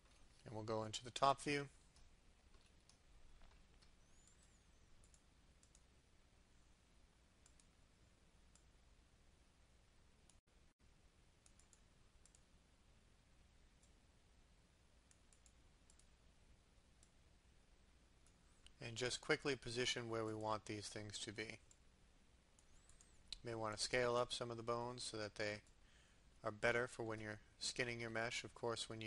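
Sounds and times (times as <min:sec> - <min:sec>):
computer mouse clicks: 0:01.9 - 0:05.9, 0:07.4 - 0:07.8, 0:11.4 - 0:12.5, 0:15.1 - 0:16.1, 0:22.6 - 0:23.4.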